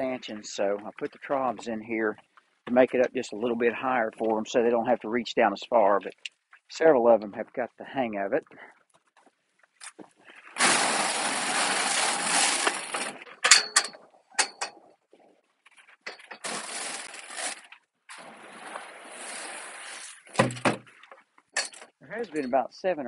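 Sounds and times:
dry feed pouring from bucket: 0:10.6 - 0:13.2.

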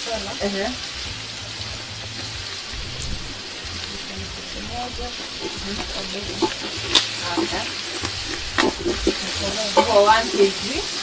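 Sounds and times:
food sizzling in a hot pan: 0:00.0 - 0:11.0
spoon knocking and scraping pan: 0:04.7 - 0:11.0.

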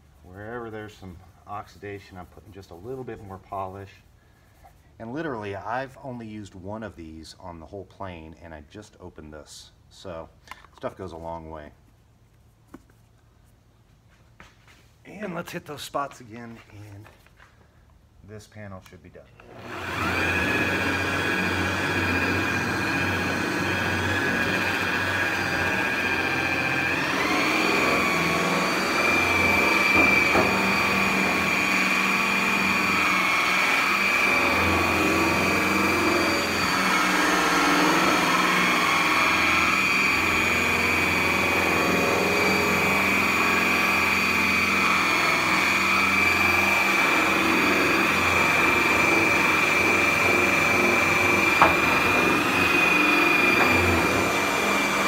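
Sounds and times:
electric buffer motor whining: 0:19.4 - 0:55.0.

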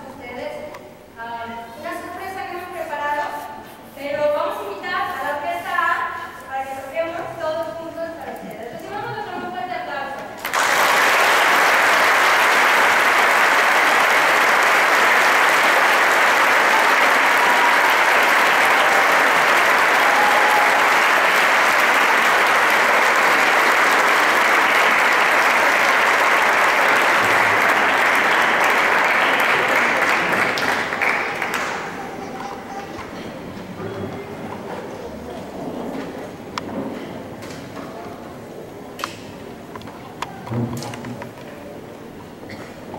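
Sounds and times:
audience applauding: 0:10.4 - 0:34.3.

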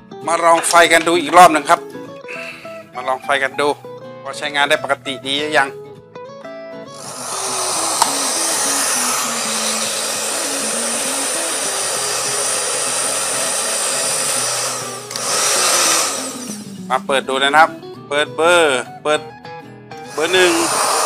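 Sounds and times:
hair dryer blowing: 0:06.9 - 0:16.7, 0:20.1 - 0:21.0
hair dryer switch: 0:07.0 - 0:16.6, 0:20.1 - 0:21.0.

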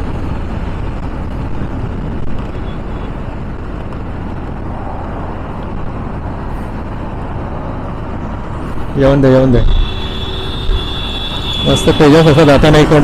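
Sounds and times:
wind rushing over microphone: 0:00.0 - 0:09.9
motorcycle engine and tyre noise: 0:00.0 - 0:13.0.

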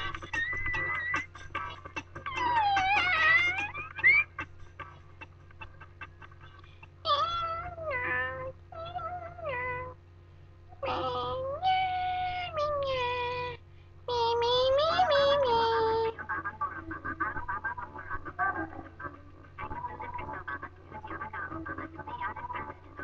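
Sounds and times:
high-pitched voice singing: 0:00.0 - 0:01.3, 0:02.2 - 0:04.2, 0:07.1 - 0:10.0, 0:10.8 - 0:23.0.

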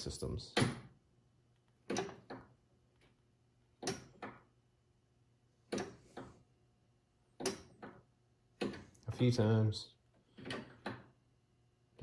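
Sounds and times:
lever clunking: 0:01.8 - 0:02.6, 0:03.8 - 0:04.5, 0:05.7 - 0:06.4, 0:07.3 - 0:09.0, 0:10.3 - 0:11.2.

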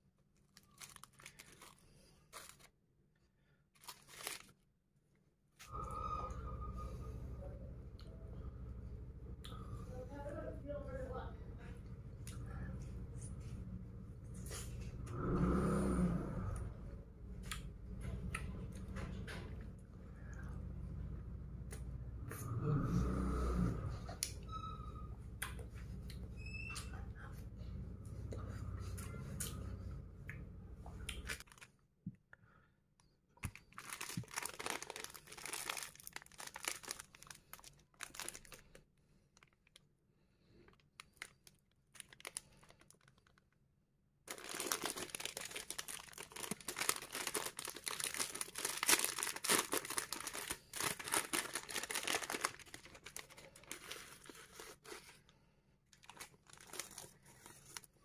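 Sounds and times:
plastic wrapper crinkling and tearing: 0:00.3 - 0:02.8, 0:03.7 - 0:04.7, 0:31.2 - 0:31.8, 0:33.4 - 0:39.9, 0:40.6 - 0:43.6, 0:44.3 - 0:55.2, 0:55.9 - 0:58.0.

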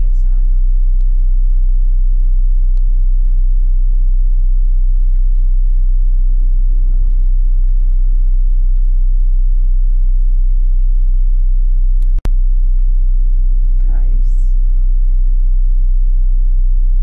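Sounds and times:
bus engine rumble: 0:13.6 - 0:15.4.

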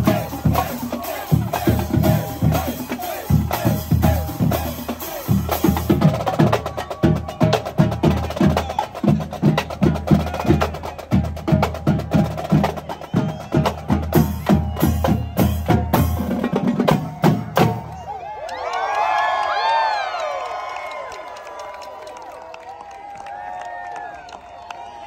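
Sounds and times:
marching drumline cadence: 0:00.0 - 0:18.2.

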